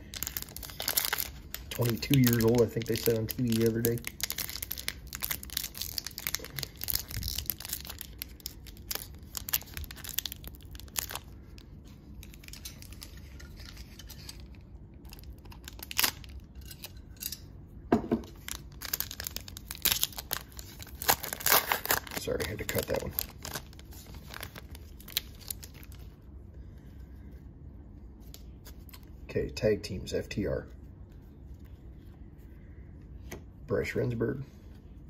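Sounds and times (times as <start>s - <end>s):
foil wrapper tearing and crinkling: 0.0s - 11.6s, 15.1s - 16.5s, 18.3s - 26.1s.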